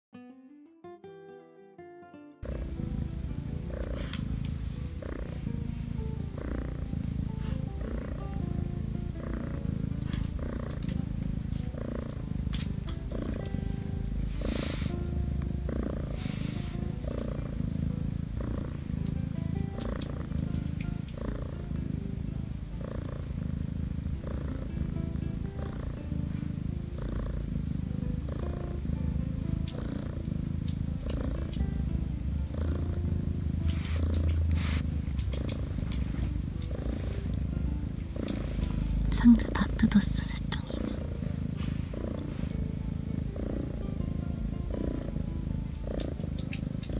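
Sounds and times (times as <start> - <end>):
kitten purring: 2.4 - 46.9.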